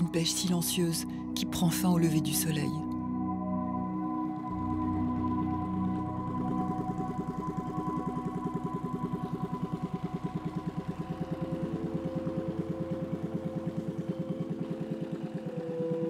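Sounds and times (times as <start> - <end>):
ambient music: 0.0 - 16.0
boat engine pulsing: 0.0 - 16.0.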